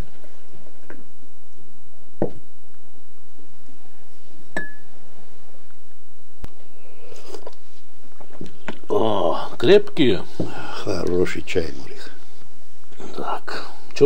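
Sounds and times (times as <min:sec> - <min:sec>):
ringing glass clink: 0:04.6 - 0:04.9.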